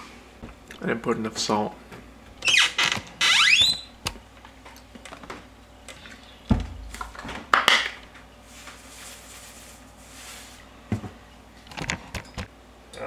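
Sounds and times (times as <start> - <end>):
short scraping rustle: 8.4 - 10.6
salt shaking hiss: 8.5 - 10.6.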